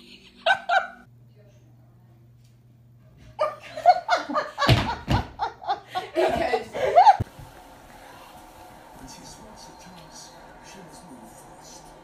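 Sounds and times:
girl laughing hard: 0.0s - 1.0s.

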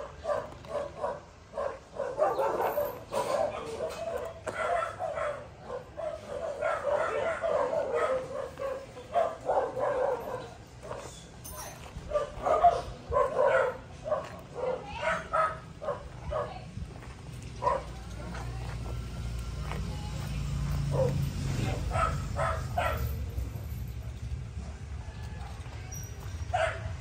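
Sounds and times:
dog barking: 0.0s - 11.0s, 12.1s - 16.6s, 17.6s - 18.0s, 20.9s - 23.2s, 26.5s - 27.0s.

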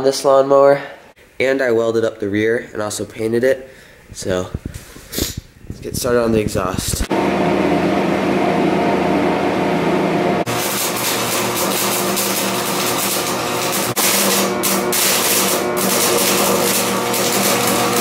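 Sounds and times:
electric welder humming: 7.0s - 18.0s
welding arc crackling: 10.4s - 18.0s.

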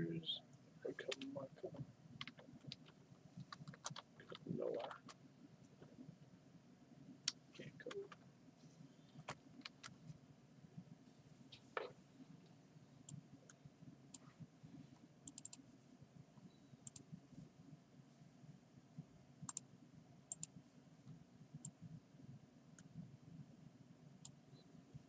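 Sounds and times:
faint room hum: 0.0s - 25.0s
computer keys and mouse clicking: 2.2s - 4.4s, 15.2s - 15.6s, 16.8s - 17.0s, 20.3s - 20.5s.

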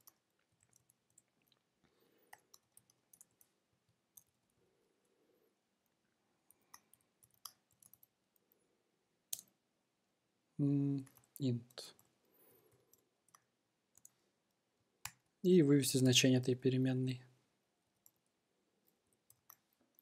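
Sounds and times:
keyboard typing clicks: 6.7s - 8.1s.

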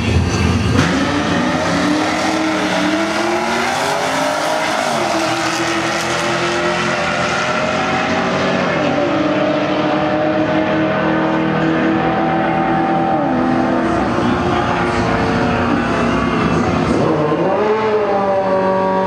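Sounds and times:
cars accelerating hard: 0.0s - 19.0s.

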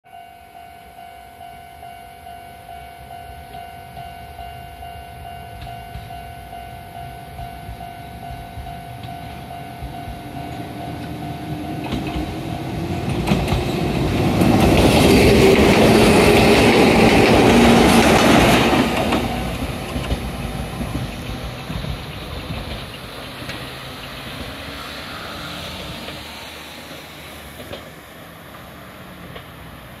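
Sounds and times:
level-crossing warning bell: 0.1s - 14.3s.

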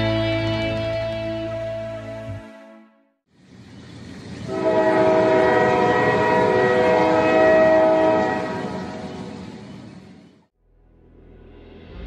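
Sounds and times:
moving train rumble: 3.3s - 10.5s
train horn chord: 4.5s - 9.4s.

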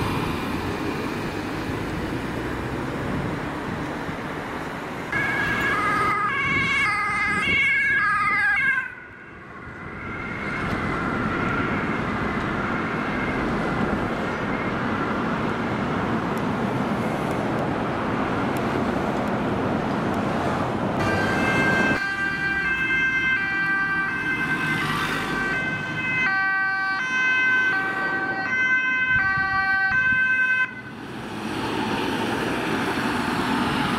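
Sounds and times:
road traffic noise: 0.0s - 33.9s
two-tone sirens: 5.1s - 15.2s, 21.0s - 33.9s.

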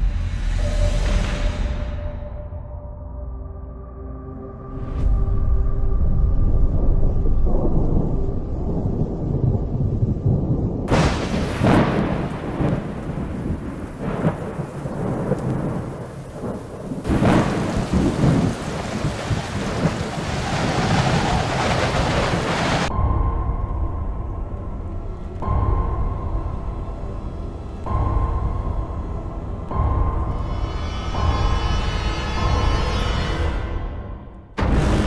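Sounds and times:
low rolling thunder: 5.8s - 26.7s
sharp thunderclaps: 6.4s - 23.5s
heavy rain: 6.7s - 22.9s, 34.6s - 35.0s.

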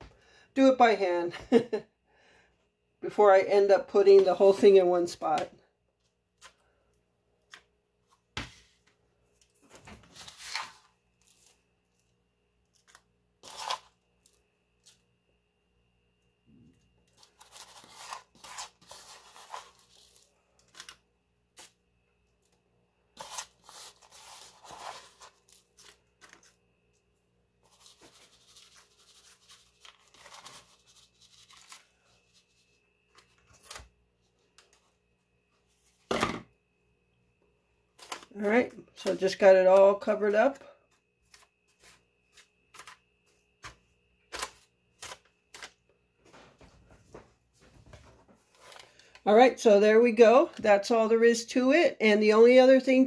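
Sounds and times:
parchment paper crinkling: 9.3s - 12.0s, 17.0s - 21.8s, 23.2s - 26.6s, 27.6s - 34.9s, 38.0s - 40.1s, 48.4s - 49.2s.

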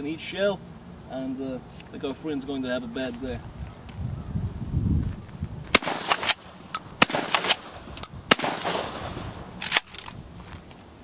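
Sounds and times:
shotgun shots: 5.7s - 10.0s
shotgun pump clicks: 5.8s - 8.9s.

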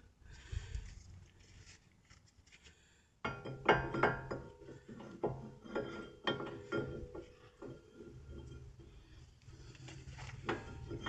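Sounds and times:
metal clinks and scrapes: 3.3s - 11.0s.

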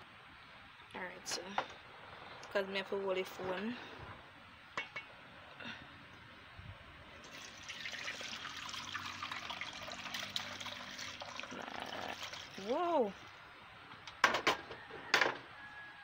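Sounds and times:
liquid pouring through a strainer: 7.2s - 12.7s.

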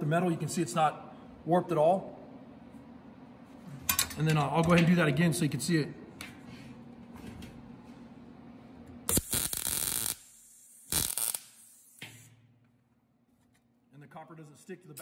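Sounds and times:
welder arc crackling: 9.1s - 12.3s.

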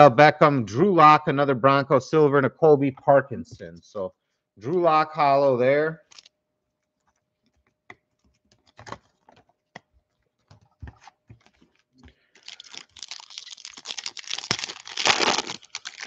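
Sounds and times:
foil wrapper crinkling: 6.0s - 6.3s, 11.0s - 16.0s.

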